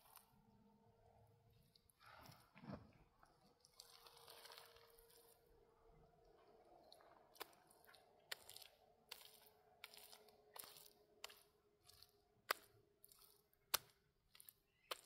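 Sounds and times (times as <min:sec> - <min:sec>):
mud plaster scraping and squishing: 0:01.8 - 0:05.4, 0:06.4 - 0:15.0.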